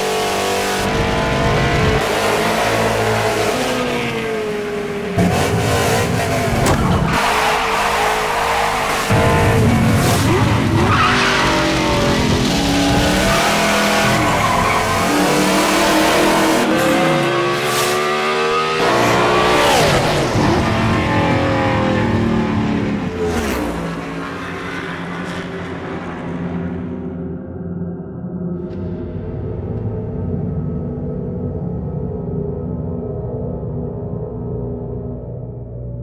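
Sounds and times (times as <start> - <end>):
race car engine revving: 0.0 - 26.6.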